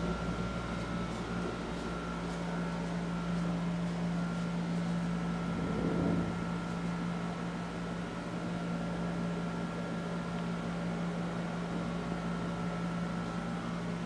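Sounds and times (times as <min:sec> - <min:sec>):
ventilation hum: 0:00.0 - 0:14.0.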